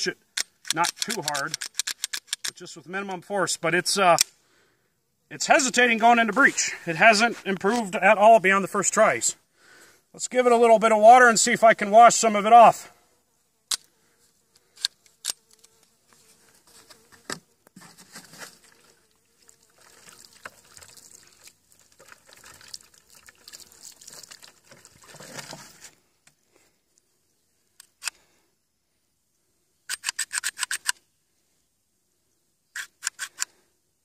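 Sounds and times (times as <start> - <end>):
pistol handling clicks: 0.4 - 2.6.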